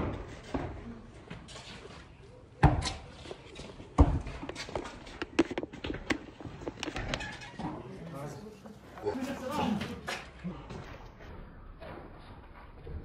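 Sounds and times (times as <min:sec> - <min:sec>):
basketball bouncing on concrete: 0:03.9 - 0:07.3.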